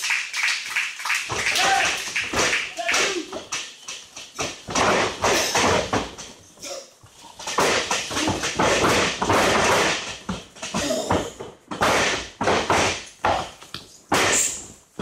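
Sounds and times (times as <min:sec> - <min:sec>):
people shouting and yelling: 0:01.4 - 0:03.4.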